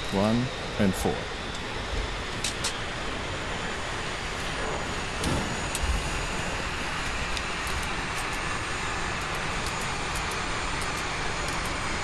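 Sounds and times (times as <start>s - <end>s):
rush of air and machinery: 1.6s - 12.0s.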